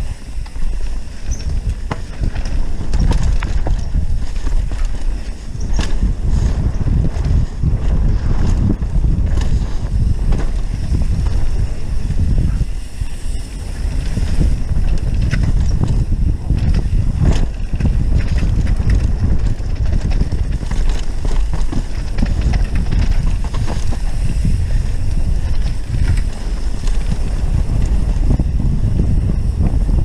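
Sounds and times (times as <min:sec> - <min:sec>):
bike clicks and knocks: 0:00.0 - 0:30.0
tyres rumbling on dirt: 0:00.0 - 0:30.0
wind buffeting microphone: 0:00.0 - 0:30.0.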